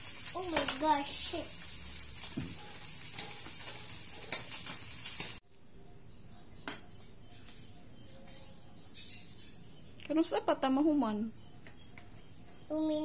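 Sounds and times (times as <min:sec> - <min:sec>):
food sizzling in a pan: 0:00.0 - 0:05.4
knock: 0:02.4 - 0:02.6.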